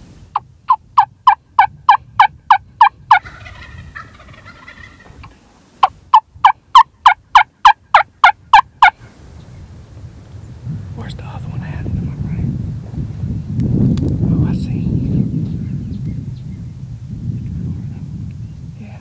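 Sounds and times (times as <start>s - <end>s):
turkey call yelps: 0.7s - 5.1s
turkey gobbling: 0.7s - 9.0s.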